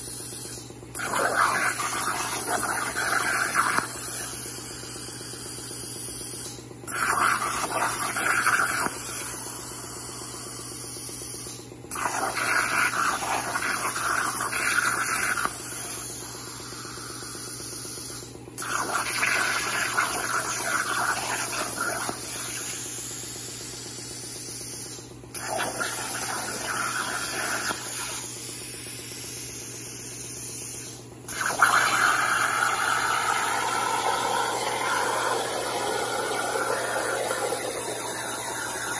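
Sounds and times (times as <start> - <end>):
plasma torch hissing: 1.0 - 4.6, 6.9 - 10.4, 11.9 - 17.2, 18.6 - 23.0, 25.4 - 28.3, 30.8 - 38.9.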